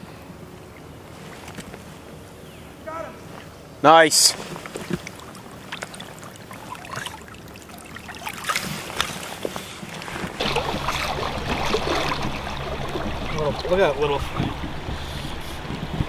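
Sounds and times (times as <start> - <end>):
creek water flowing: 3.4 - 16.0
light water splashing: 4.3 - 16.0.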